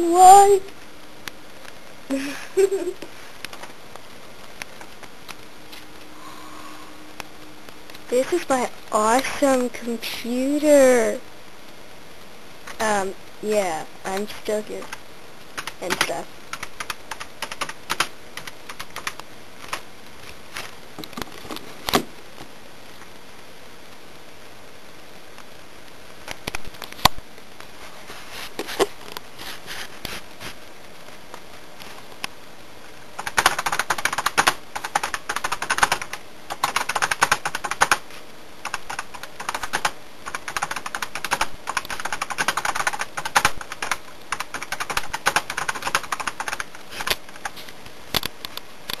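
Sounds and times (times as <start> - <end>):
typing on computer keyboard: 15.6 - 19.8, 33.2 - 38.0, 38.6 - 47.5.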